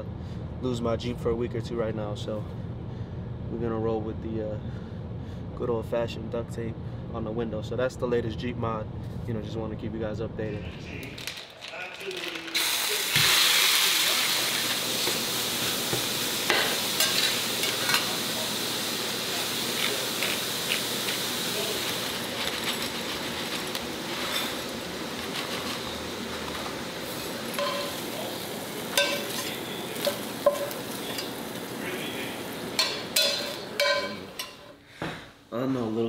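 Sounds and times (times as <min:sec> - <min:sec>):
meat sizzling in a skillet: 0:12.5 - 0:34.4.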